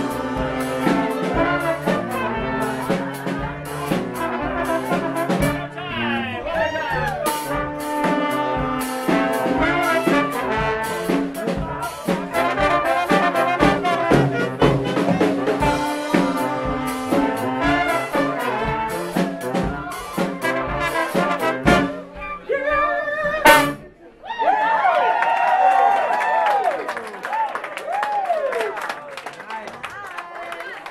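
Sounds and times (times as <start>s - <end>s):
brass band playing: 0.0s - 24.0s
steady drum beat: 0.0s - 24.0s.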